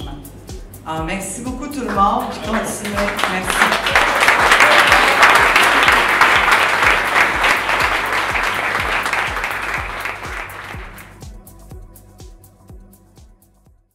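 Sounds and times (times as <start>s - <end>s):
background music with steady beat: 0.0s - 13.9s
audience applauding: 1.9s - 11.2s.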